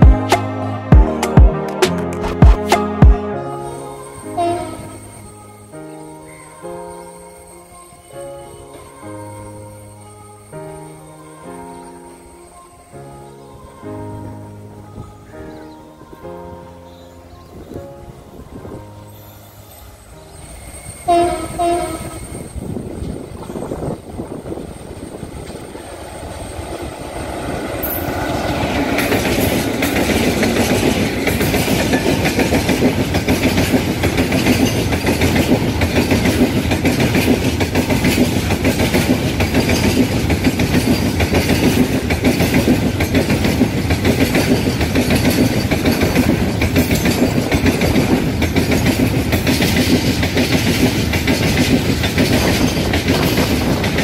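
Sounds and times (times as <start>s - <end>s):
freight train passing: 0.0s - 54.0s
train wheels clacking over rail joints: 27.8s - 54.0s.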